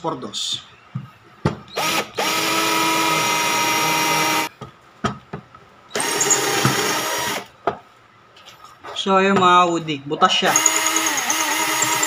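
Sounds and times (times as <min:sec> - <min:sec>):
drill motor whine: 0:01.7 - 0:04.5, 0:06.0 - 0:07.4, 0:10.5 - 0:12.0.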